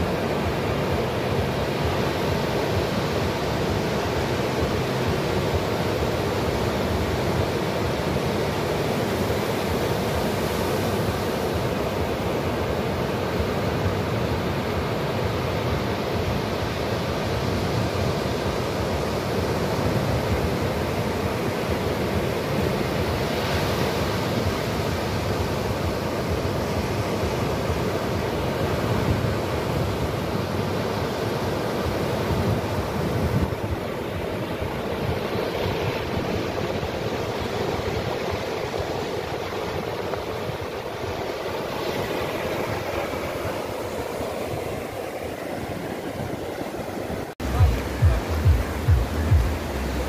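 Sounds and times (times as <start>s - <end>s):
sea surf breaking on sand: 0.0s - 50.0s
wind buffeting microphone: 17.5s - 50.0s.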